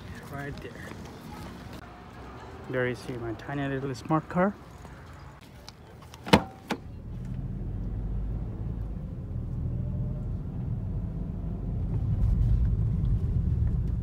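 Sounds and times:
car interior driving rumble: 6.9s - 14.0s.

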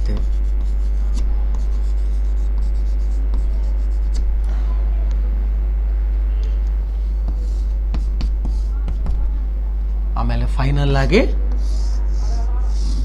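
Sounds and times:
chalk writing on a board: 0.0s - 4.2s, 7.2s - 9.3s, 11.5s - 13.0s
electrical mains hum: 0.0s - 13.0s.

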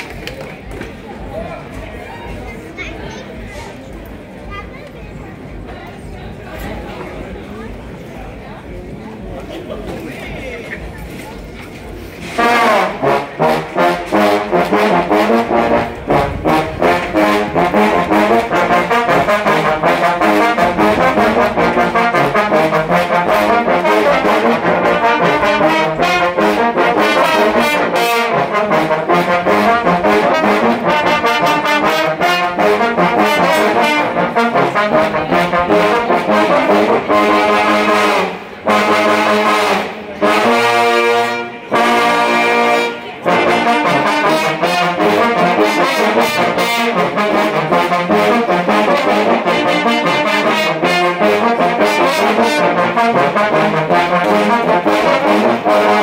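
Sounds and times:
trombones playing brass tune: 11.9s - 56.0s.

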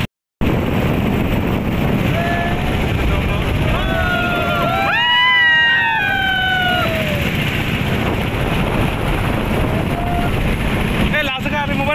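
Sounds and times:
wind noise: 0.0s - 11.9s
motorboat engine running: 0.4s - 11.9s
man whooping: 3.7s - 7.3s.

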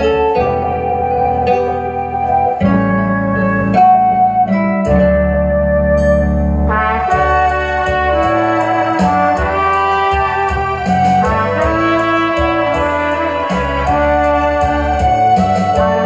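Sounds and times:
low bass notes: 0.0s - 16.0s
trumpet playing slow melody: 0.0s - 16.0s.

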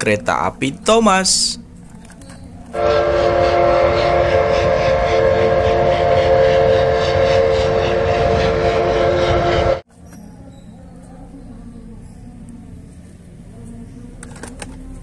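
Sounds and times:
moving train rumble: 2.7s - 9.8s
steam locomotive whistle: 2.8s - 9.8s.

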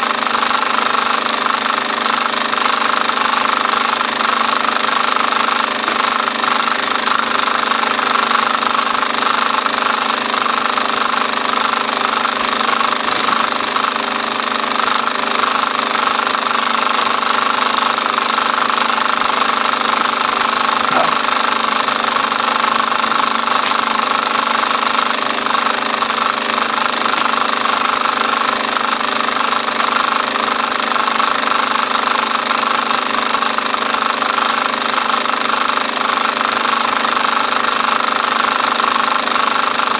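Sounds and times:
film projector clattering: 0.0s - 39.9s.

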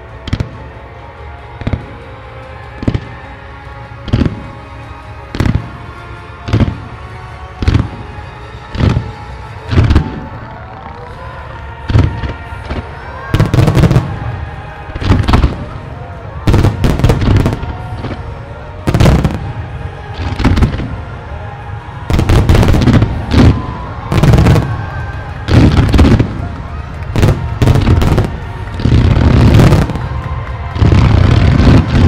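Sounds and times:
music playing: 0.0s - 32.0s.

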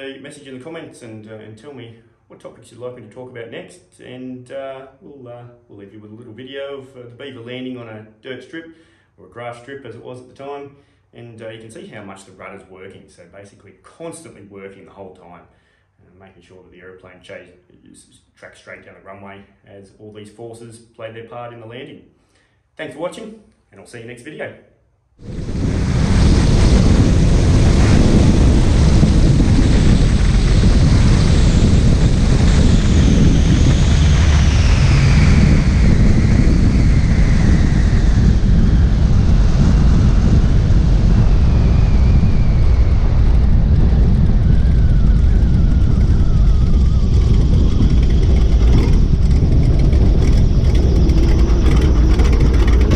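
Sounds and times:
faint whine sliding down: 25.2s - 52.9s
propeller plane engine running: 25.2s - 52.9s
wind rushing over microphone: 25.2s - 52.9s.

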